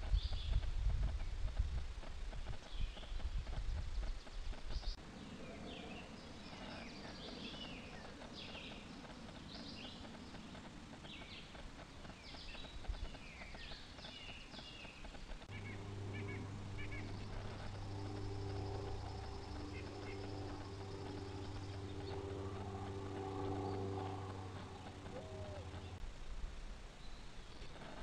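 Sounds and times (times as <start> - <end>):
low background rumble: 0.0 - 28.0
steady low hum: 0.0 - 28.0
songbirds chirping: 2.3 - 28.0.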